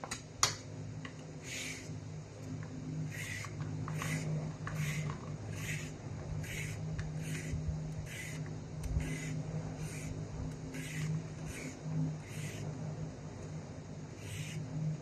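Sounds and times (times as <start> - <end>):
steady low hum: 0.0 - 15.0
peeler scraping a carrot: 3.1 - 12.6, 14.2 - 14.6.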